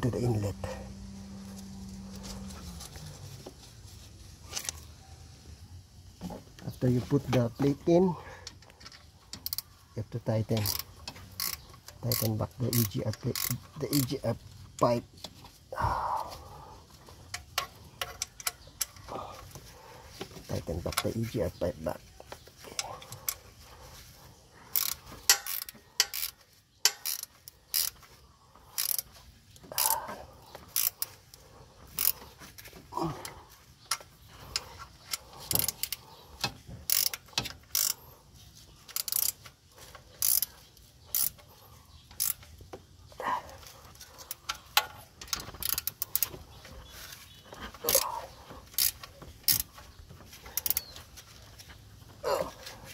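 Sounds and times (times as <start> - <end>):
spanner metallic clicks: 7.3 - 15.4, 17.3 - 19.1, 24.7 - 28.0, 28.7 - 32.3, 33.9 - 38.2, 38.8 - 42.6, 43.6 - 46.6, 47.8 - 48.0, 48.6 - 51.7.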